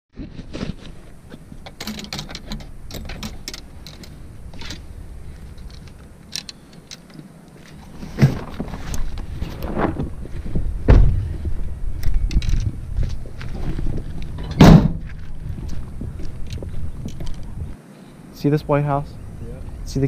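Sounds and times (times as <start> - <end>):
gear handling clicks and clinks: 1.6 - 4.8, 5.4 - 7.9, 12.0 - 13.5
vehicle door thump: 10.8 - 11.2, 14.6 - 15.0.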